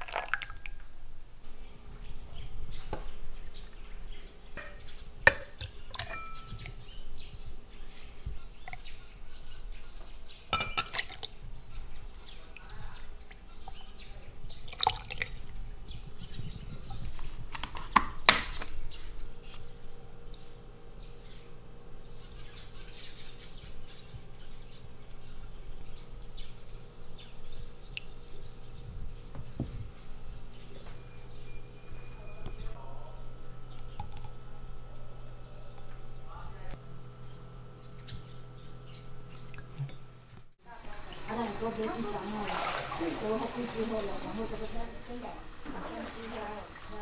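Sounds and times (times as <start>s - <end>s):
syrup dripping and pouring: 0.0s - 0.8s
spoon clinking glass and bowls: 4.6s - 6.7s, 10.6s - 11.3s.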